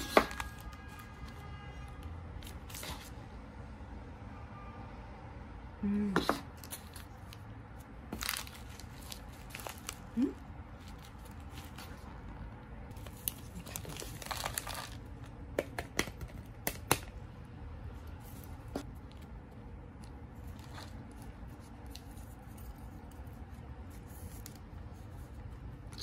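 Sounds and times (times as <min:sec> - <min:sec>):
plastic packets crinkling: 0:08.1 - 0:12.0, 0:12.9 - 0:15.3.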